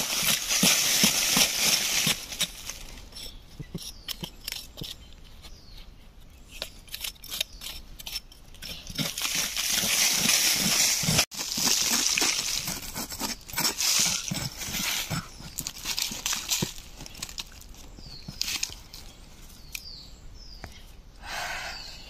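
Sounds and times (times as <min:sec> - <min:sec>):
knife scraping into dry soil: 0:00.0 - 0:17.3.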